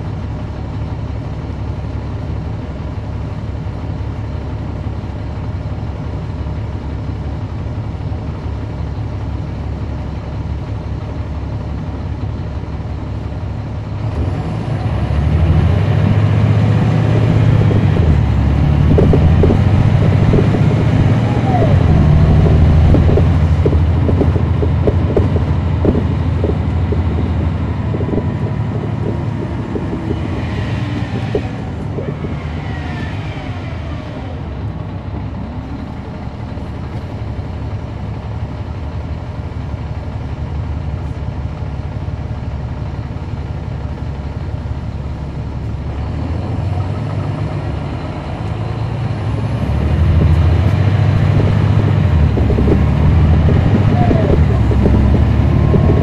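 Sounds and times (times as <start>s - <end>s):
bus diesel engine: 0.0s - 56.0s
transmission whine: 15.8s - 37.1s, 49.2s - 56.0s.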